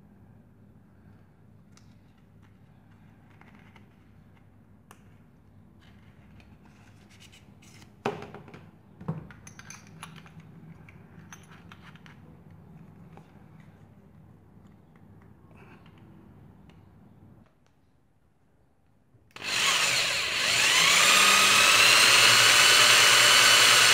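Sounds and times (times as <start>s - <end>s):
drill bit rattling and scraping: 19.4s - 23.9s.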